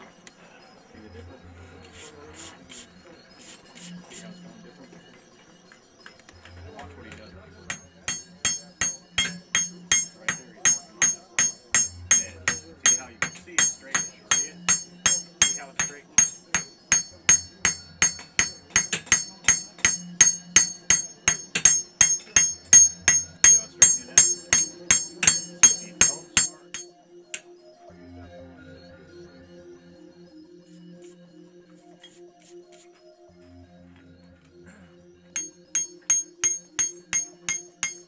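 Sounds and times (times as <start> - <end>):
hammer striking anvil: 7.2 - 27.5, 35.4 - 38.0.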